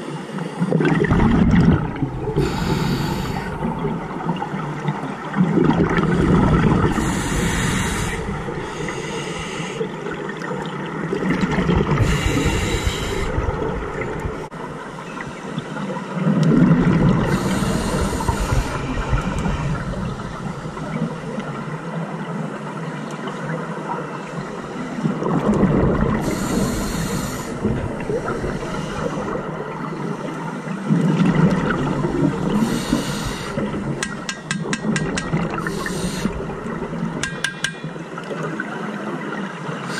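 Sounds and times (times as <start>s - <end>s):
exhale bubbling underwater: 0.6s - 21.9s, 24.3s - 39.9s
regulator hiss on inhale: 2.3s - 3.7s, 6.9s - 9.9s, 12.0s - 13.4s, 17.2s - 20.9s, 26.2s - 29.4s, 32.5s - 33.7s, 35.6s - 36.7s.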